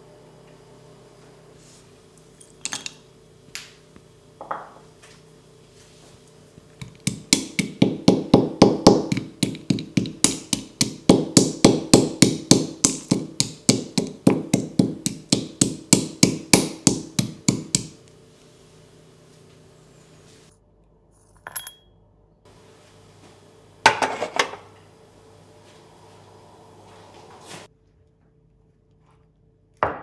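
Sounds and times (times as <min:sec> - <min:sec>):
pestle pounding in stone mortar: 0:06.8 - 0:18.0.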